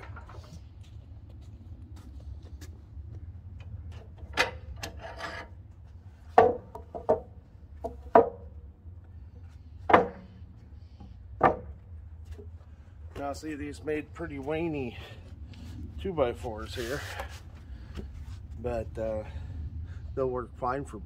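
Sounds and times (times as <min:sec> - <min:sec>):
low steady hum: 0:00.0 - 0:21.0
wooden boards clacking together: 0:06.3 - 0:08.6, 0:09.9 - 0:10.4, 0:11.4 - 0:11.8.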